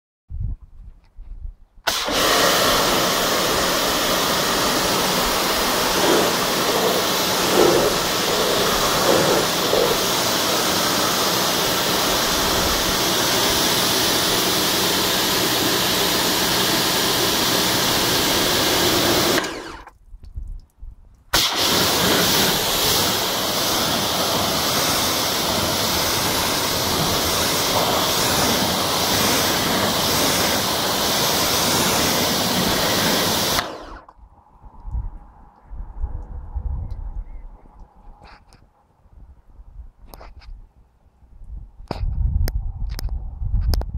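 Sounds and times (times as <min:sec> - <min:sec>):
water jet hissing on car: 0:01.9 - 0:19.7, 0:21.4 - 0:33.8
pressure washer pump drone: 0:01.9 - 0:19.9, 0:21.3 - 0:34.1.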